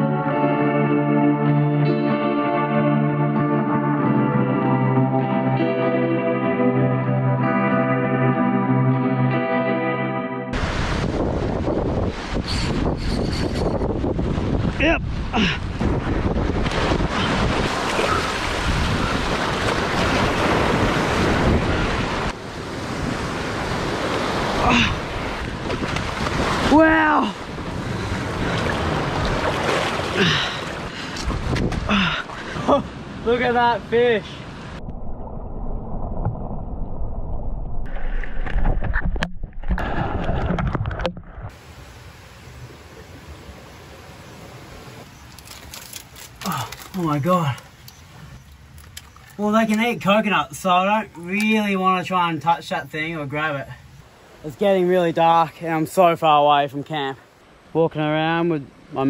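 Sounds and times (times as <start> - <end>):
surf washing over rocks: 10.6 - 12.4, 13.9 - 34.8
wind buffeting microphone: 10.6 - 33.2
muffled underwater water rushing: 13.8 - 33.3, 34.4 - 45.2
swimmer splashing: 16.7 - 31.2.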